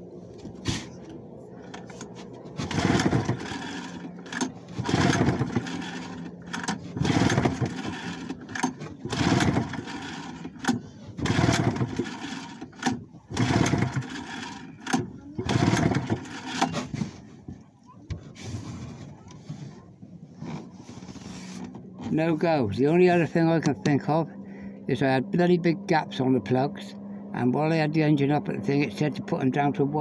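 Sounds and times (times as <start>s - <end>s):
starter cord pulls: 1.7s - 17.1s.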